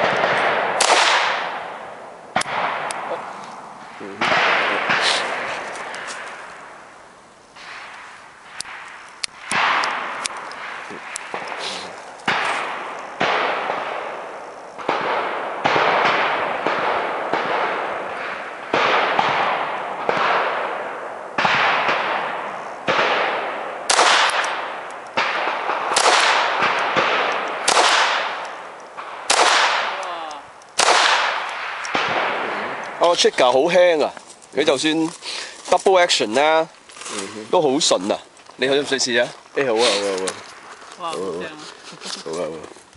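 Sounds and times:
pistol shots echoing: 0:00.0 - 0:03.3, 0:03.9 - 0:06.8, 0:07.6 - 0:34.0.

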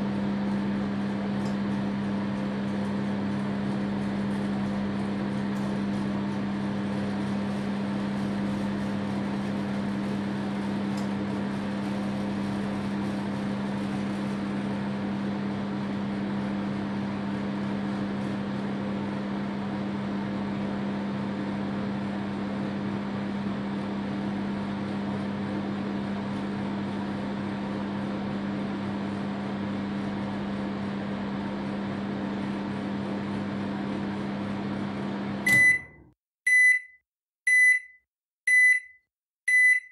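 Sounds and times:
microwave oven humming: 0:00.0 - 0:36.7
high microwave beeps: 0:35.4 - 0:39.9.

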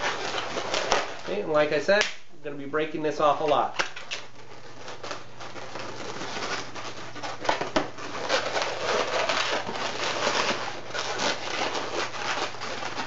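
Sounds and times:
balloon rubbing and squeaking: 0:00.0 - 0:01.5, 0:04.3 - 0:13.0
balloon snapping: 0:01.9 - 0:02.3.

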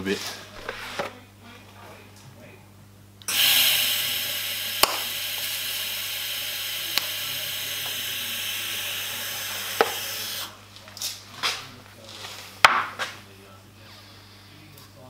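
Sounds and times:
welding arc sizzling hiss: 0:03.3 - 0:10.6.

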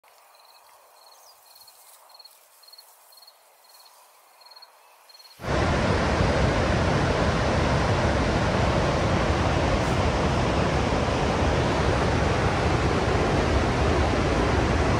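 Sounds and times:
insect chirping: 0:00.2 - 0:05.4
waterfall rushing over rocks: 0:05.4 - 0:14.9.

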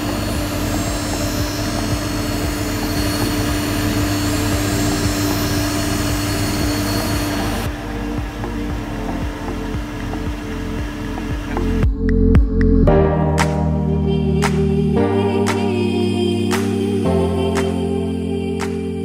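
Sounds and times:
grinding wheel hissing on blade: 0:00.0 - 0:11.8
steady motor drone: 0:00.0 - 0:19.0.

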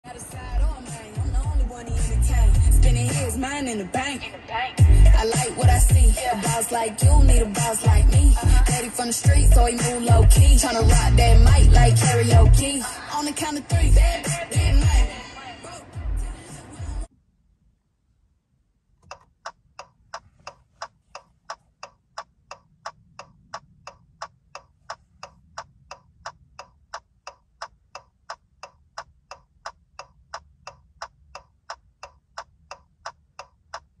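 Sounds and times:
turn-signal ticker clicking: 0:05.2 - 0:12.8, 0:19.0 - 0:34.0.

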